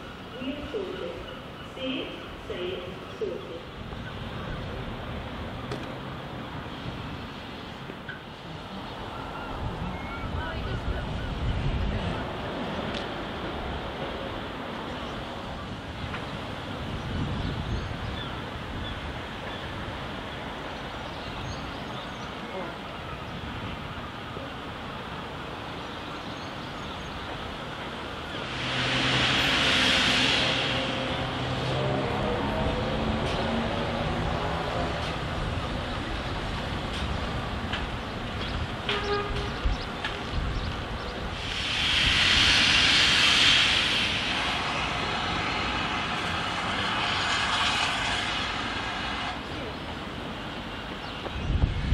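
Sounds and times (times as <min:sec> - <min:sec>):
loud steady steam hiss: 0:00.0 - 0:51.9
wind buffeting microphone: 0:08.9 - 0:20.2, 0:27.4 - 0:49.3, 0:51.0 - 0:51.9
steam hissing: 0:27.3 - 0:33.5, 0:41.2 - 0:50.4.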